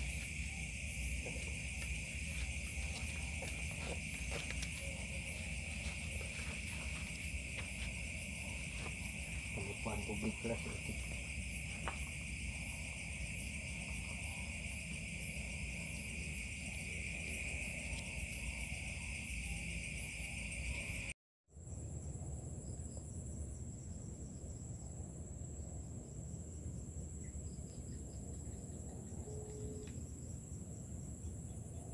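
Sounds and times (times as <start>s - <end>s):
insect chorus trilling: 0.0s - 21.1s, 21.7s - 31.9s
higher-pitched insect chorus: 0.0s - 31.9s.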